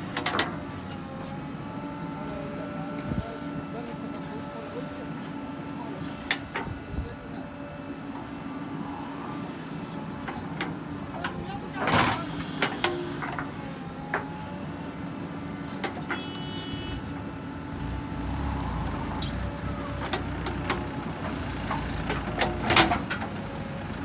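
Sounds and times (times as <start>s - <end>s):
diesel engine running: 0.0s - 24.0s
tractor engine rumble: 0.0s - 24.0s
metal clanks and knocks: 20.0s - 23.4s.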